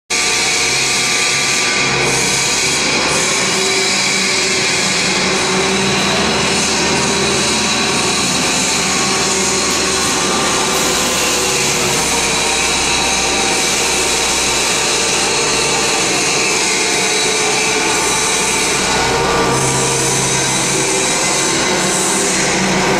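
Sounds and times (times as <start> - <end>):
mechanical drone of pumps: 0.1 - 22.9
steady whining tones: 0.1 - 22.9
strong hiss: 5.6 - 22.9.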